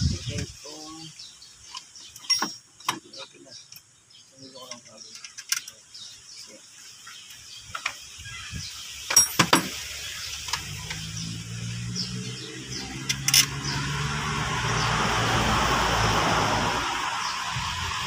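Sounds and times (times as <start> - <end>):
engine parts clicking and clacking: 1.7 - 3.9, 4.5 - 5.8, 9.1 - 11.2, 12.8 - 13.8
vehicle engine hum: 9.7 - 18.0.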